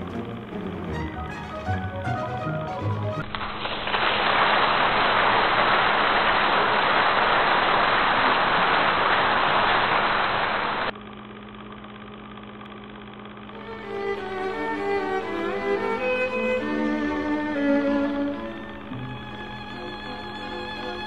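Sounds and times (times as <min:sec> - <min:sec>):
low steady hum: 0:00.0 - 0:03.6, 0:10.4 - 0:21.0
loud steady hiss: 0:03.2 - 0:10.9.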